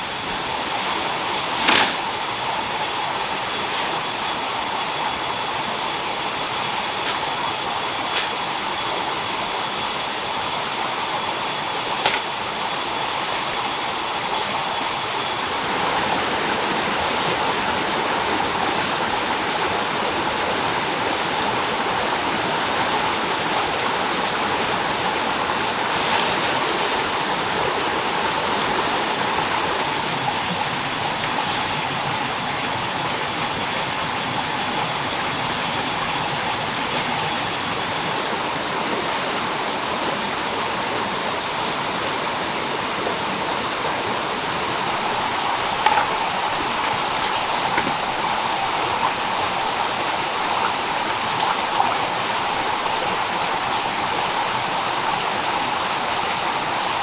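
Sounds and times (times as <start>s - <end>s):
stream rushing: 0.0s - 57.0s
plant stems snapping: 1.6s - 2.0s.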